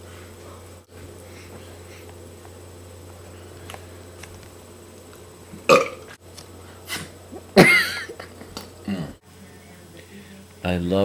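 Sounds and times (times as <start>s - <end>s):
man burping loudly: 5.7s - 6.0s, 8.8s - 9.2s.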